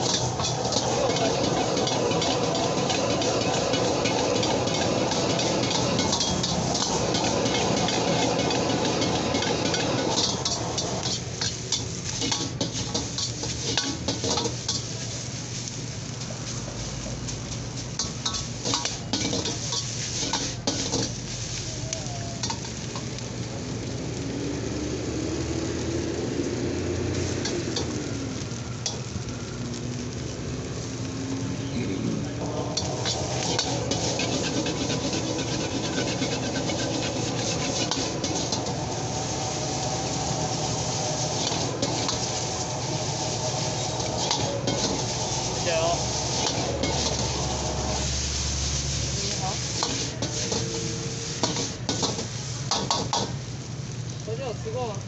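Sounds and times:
metal ladle scraping a wok: 0.0 - 15.7, 17.8 - 21.6, 32.4 - 53.2
noodles sizzling: 0.0 - 55.0.

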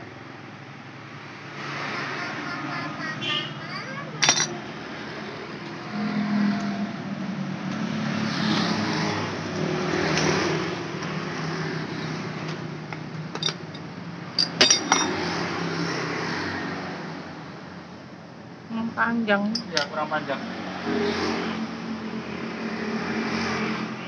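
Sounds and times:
metallic tool clinks: 4.2 - 4.6, 14.4 - 15.2.

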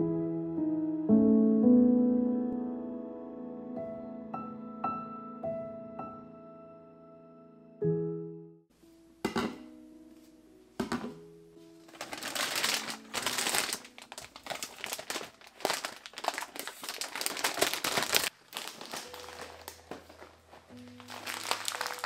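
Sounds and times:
soft background music: 0.0 - 22.0
plastic bags crinkling: 11.8 - 22.0.

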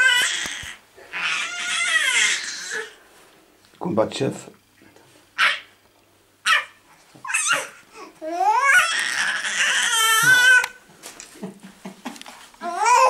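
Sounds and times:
baby squealing and babbling: 0.0 - 3.0, 5.4 - 5.7, 6.4 - 10.8, 12.6 - 13.0.

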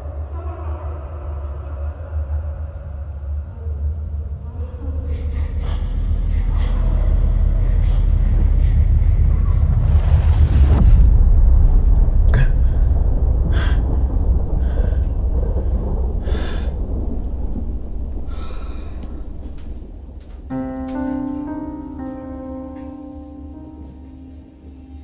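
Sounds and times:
deep rumbling drone: 0.0 - 25.0
person gasping breaths: 12.3 - 17.2, 18.2 - 19.6
held musical chord: 20.5 - 25.0.

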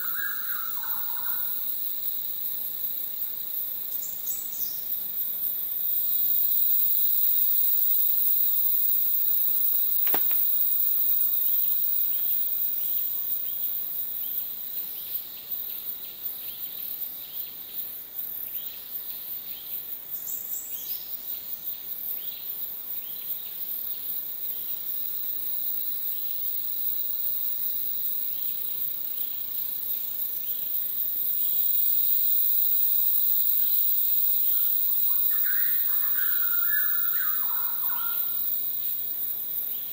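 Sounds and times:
insect chorus drone: 0.0 - 39.9
short insect chirps: 0.0 - 39.9
sharp click: 10.0 - 10.5.

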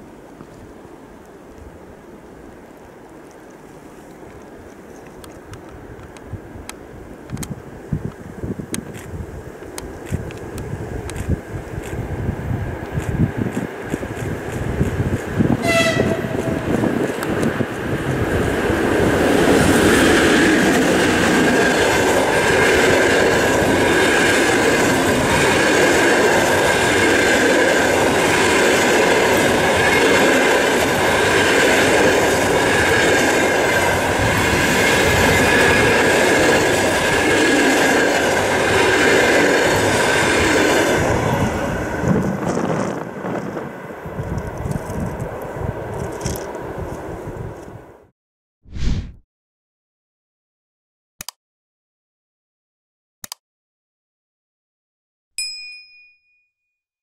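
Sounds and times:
train wheels on rails: 7.2 - 47.8.

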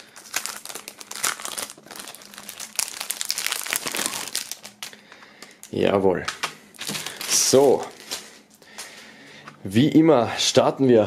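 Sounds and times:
plastic film crinkling: 0.0 - 9.0.

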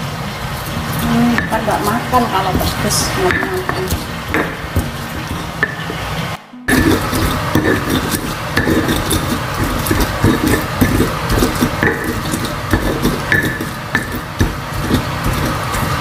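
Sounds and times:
pestle grinding in stone mortar: 0.4 - 6.1, 6.7 - 16.0.

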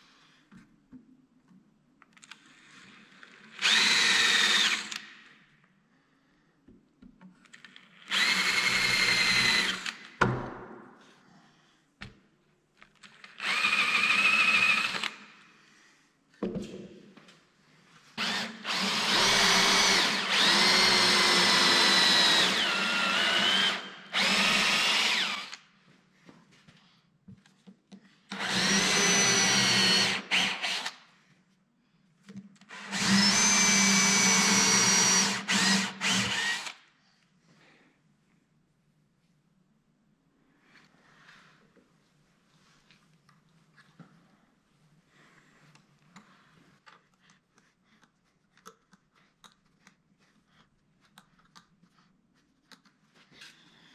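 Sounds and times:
cordless drill whining into wood: 3.5 - 5.1, 8.0 - 10.1, 13.2 - 15.3, 18.2 - 25.7, 28.3 - 31.1, 32.7 - 36.9.

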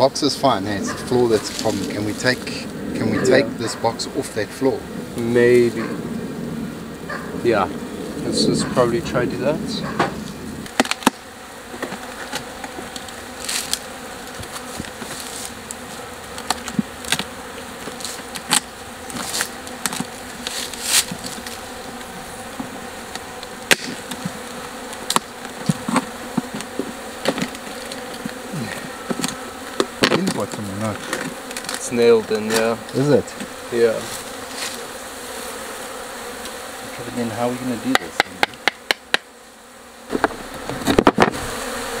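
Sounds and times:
honeybees buzzing: 0.0 - 42.0
knocks on wooden hive boxes: 9.8 - 13.7, 23.6 - 31.8, 37.8 - 39.4, 40.1 - 41.8.

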